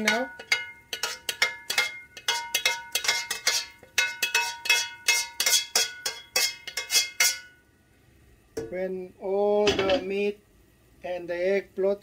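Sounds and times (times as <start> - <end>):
metal spoon clinking on steel bowl: 0.0 - 7.6.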